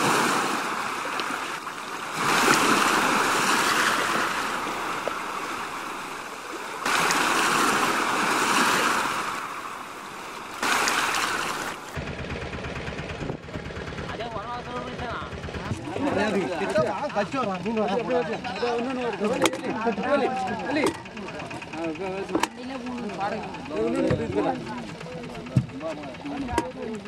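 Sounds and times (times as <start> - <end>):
sea waves rushing: 0.0 - 12.0
low steady rumble: 0.0 - 27.0.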